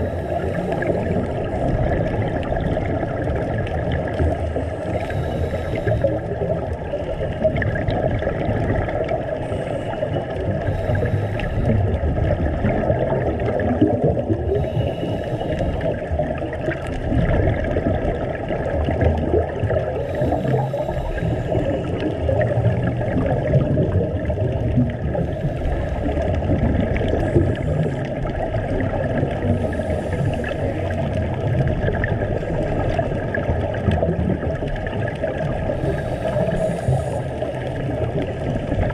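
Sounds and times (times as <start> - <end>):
underwater rumble and bubbles: 0.0 - 38.9
hissing breaths: 4.6 - 6.2, 9.4 - 11.9, 14.6 - 16.0, 19.9 - 22.2, 35.7 - 37.6.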